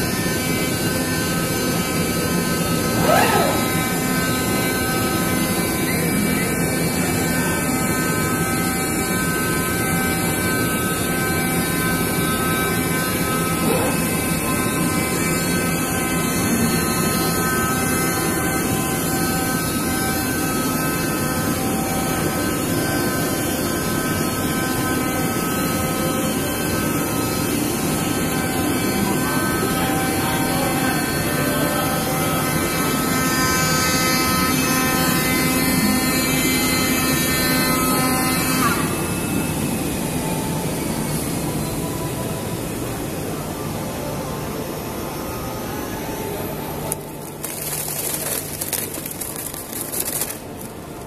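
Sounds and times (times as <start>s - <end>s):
cutting machine whirring: 0.4s - 15.2s.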